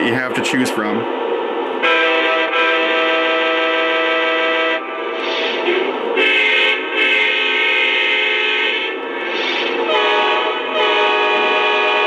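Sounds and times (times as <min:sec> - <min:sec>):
model train horn blasts: 0:01.8 - 0:05.0, 0:06.2 - 0:09.0, 0:09.8 - 0:12.0.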